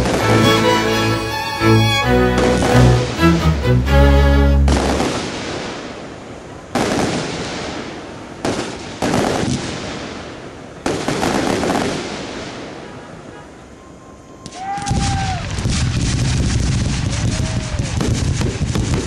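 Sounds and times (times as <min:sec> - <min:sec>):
crackling firework embers: 0:04.9 - 0:13.0, 0:14.4 - 0:19.0.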